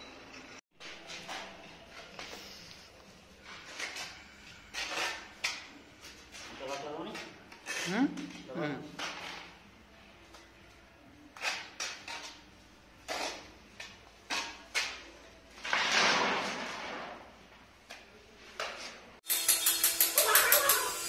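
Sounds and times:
trowel scraping wet mortar: 3.6 - 8.4, 13.0 - 15.1.

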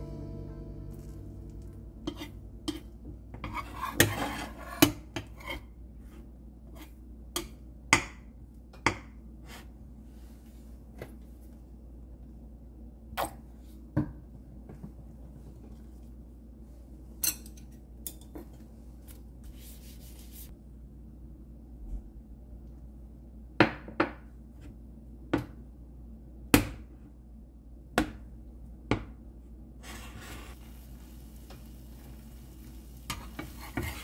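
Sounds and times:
metal turner scraping frying pan: 2.0 - 5.7, 29.8 - 30.7, 33.0 - 34.0.

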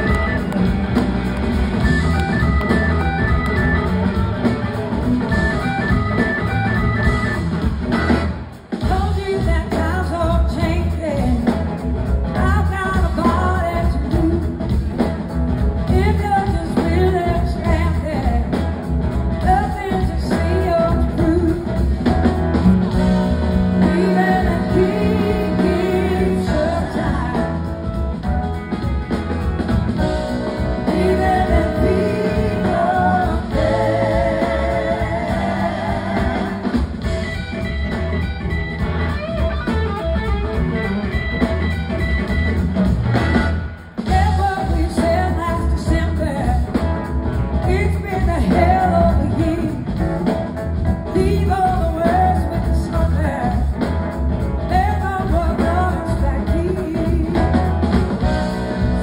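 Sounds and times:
live blues-rock band playing: 0.0 - 59.0
person singing: 23.8 - 27.7.

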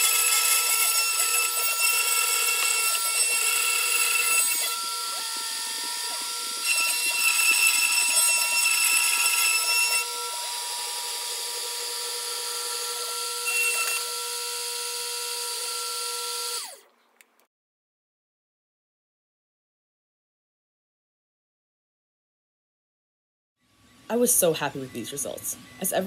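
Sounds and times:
rotary tool whining while milling wood: 0.0 - 16.8.

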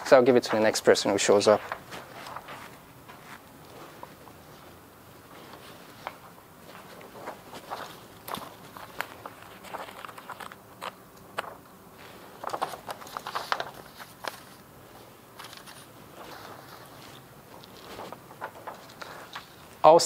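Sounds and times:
paper rustling: 0.0 - 19.8
footsteps: 1.5 - 10.0.

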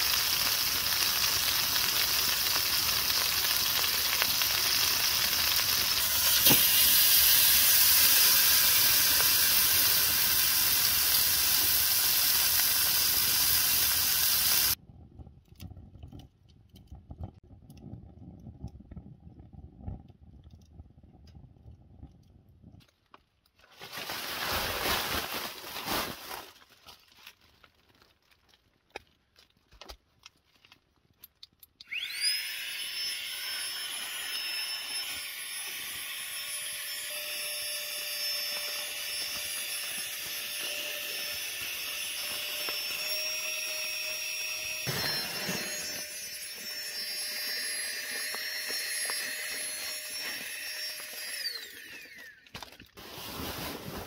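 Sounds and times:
electric air pump whirring: 5.8 - 14.8, 31.9 - 52.5.

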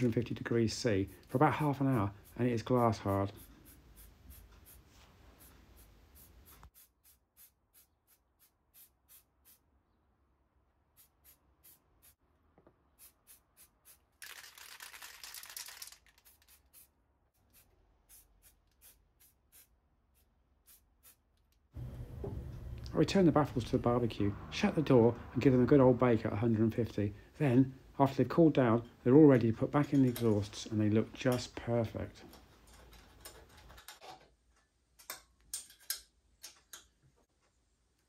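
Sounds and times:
aerosol paint spraying: 1.1 - 9.6, 10.9 - 12.2, 13.0 - 21.2.

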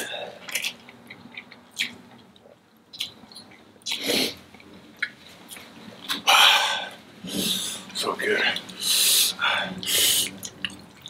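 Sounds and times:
wet mouth clicks while eating: 0.4 - 4.1
breathy slurping: 6.3 - 10.8.

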